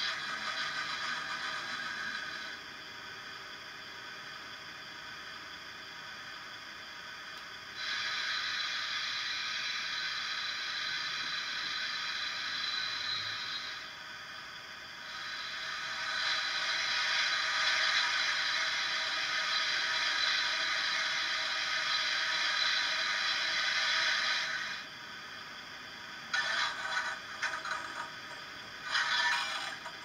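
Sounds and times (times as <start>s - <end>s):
steam hiss from small speaker: 0.0s - 30.0s
choppy scraping clatter: 26.4s - 30.0s.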